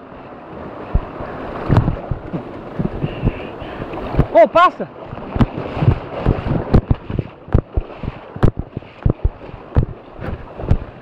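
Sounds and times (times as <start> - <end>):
wind rumble on microphone: 0.0 - 4.4, 5.0 - 11.0
camera handling knocks and thumps: 1.7 - 3.4, 6.2 - 10.9.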